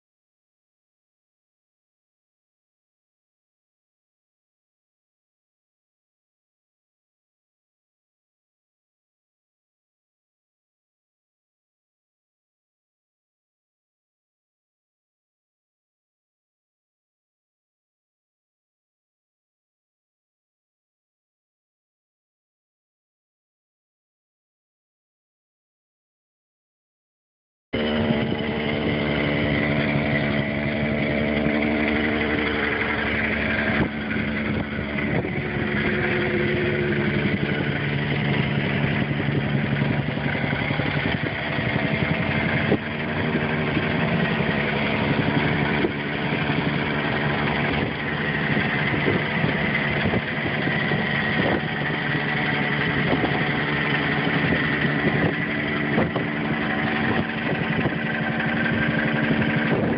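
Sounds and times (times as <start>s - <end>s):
tamping rammer pounding: 27.8s - 59.9s.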